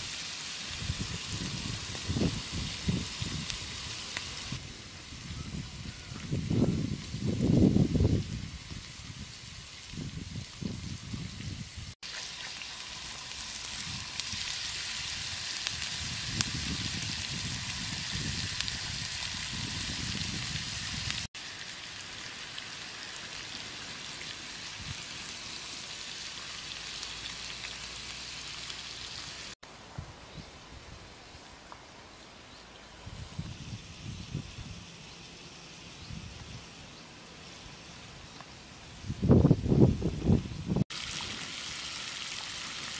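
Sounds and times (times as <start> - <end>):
meat sizzling on a hot plate: 0.0 - 5.3, 8.0 - 29.6.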